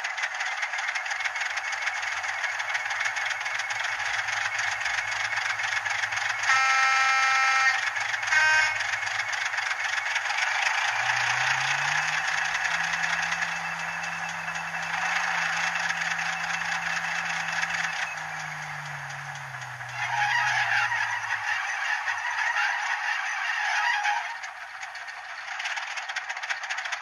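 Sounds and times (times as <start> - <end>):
small speaker diesel engine: 0.0 - 27.0
locomotive horn: 6.0 - 9.5, 10.7 - 22.8.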